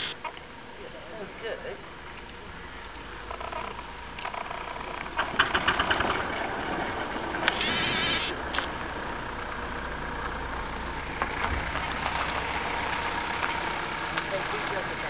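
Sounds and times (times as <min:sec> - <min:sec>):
steam engine exhaust chuffs: 0:04.3 - 0:15.0
steam hiss: 0:07.6 - 0:08.4.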